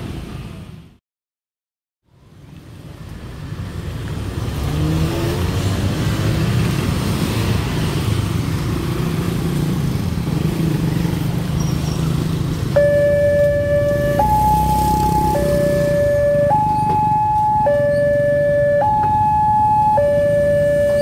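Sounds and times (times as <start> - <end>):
motorcycles and cars passing: 2.2 - 21.0
crossing warning alarm: 12.7 - 21.0.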